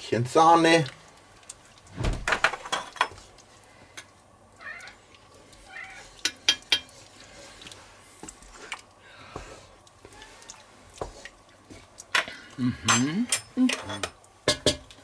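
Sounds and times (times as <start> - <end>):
spoons stirring thick stew: 0.2 - 1.9, 4.8 - 12.1
spoon clinking on pot: 6.2 - 6.9.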